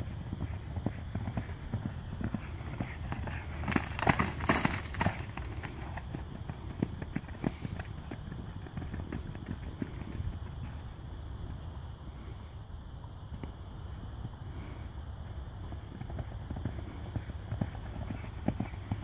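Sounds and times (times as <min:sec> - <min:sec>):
horse hooves thudding on turf: 0:00.0 - 0:10.8.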